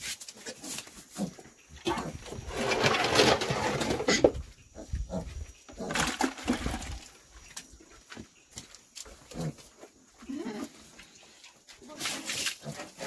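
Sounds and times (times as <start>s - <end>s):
pigs grunting and squealing: 1.1s - 6.3s, 9.2s - 11.0s.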